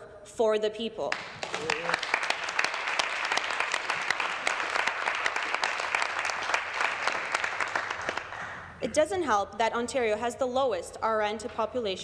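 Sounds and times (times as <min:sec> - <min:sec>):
crowd applauding: 0:01.1 - 0:08.7.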